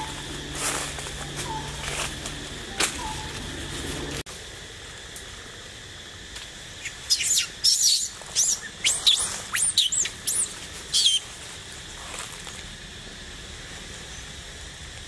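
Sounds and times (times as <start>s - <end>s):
young monkey screaming: 6.8s - 11.2s.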